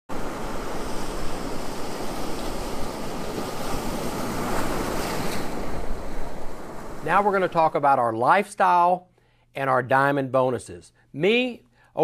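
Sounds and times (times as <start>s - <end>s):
waves breaking on beach: 0.1s - 7.8s.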